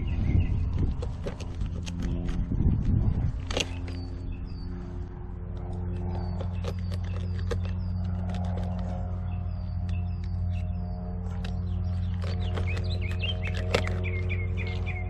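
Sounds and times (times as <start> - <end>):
bird chirping: 0.0 - 2.4, 5.7 - 15.0
steady low hum: 0.0 - 15.0.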